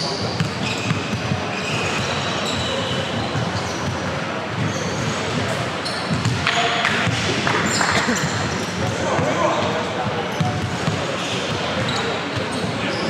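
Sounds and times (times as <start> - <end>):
shoe squeaks: 0.0 - 6.4, 7.6 - 13.0
gym background noise: 0.0 - 13.0
basketball bouncing on court: 0.2 - 9.3.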